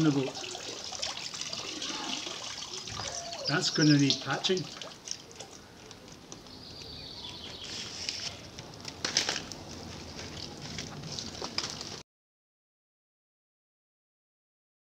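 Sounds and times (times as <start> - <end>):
paper boat rustling and scuffing: 7.5 - 12.0.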